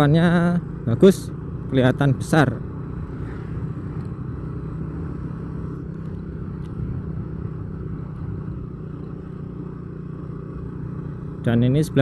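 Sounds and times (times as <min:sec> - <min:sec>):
road noise: 0:00.0 - 0:12.0
vehicle engine hum: 0:00.0 - 0:12.0.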